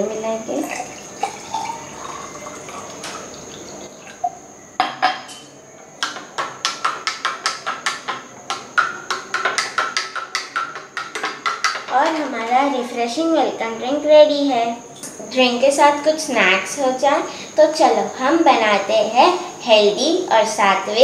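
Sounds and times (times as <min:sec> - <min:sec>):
water pouring into a glass: 0:00.7 - 0:04.4.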